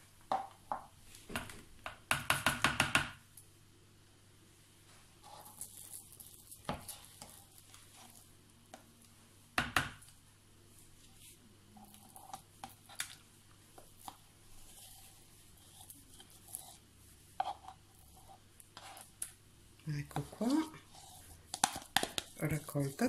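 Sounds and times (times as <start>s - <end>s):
spoon scraping and tapping in jug: 20.0s - 23.0s.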